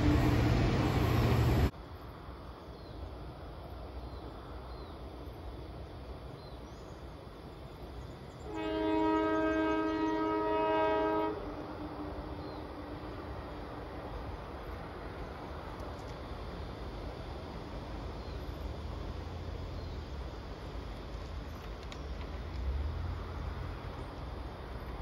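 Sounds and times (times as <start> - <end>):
faint birdsong: 2.5 - 11.0, 11.7 - 16.2, 17.8 - 20.4
locomotive air horn: 8.4 - 12.8.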